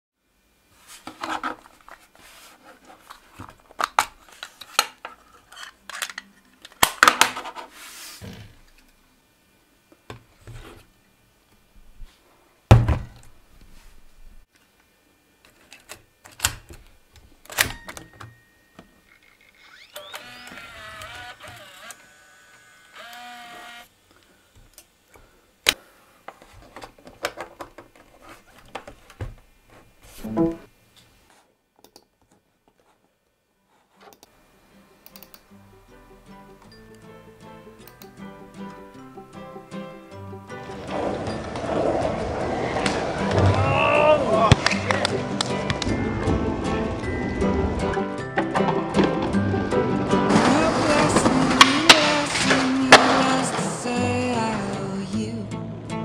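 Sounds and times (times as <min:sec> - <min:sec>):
camcorder mechanism whirring: 0:19.0 - 0:23.9
cassette clicking into camcorder: 0:20.0 - 0:22.0.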